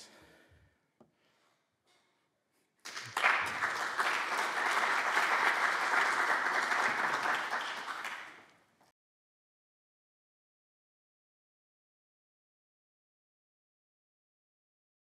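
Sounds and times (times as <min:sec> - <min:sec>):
audience applauding: 0:02.8 - 0:08.6.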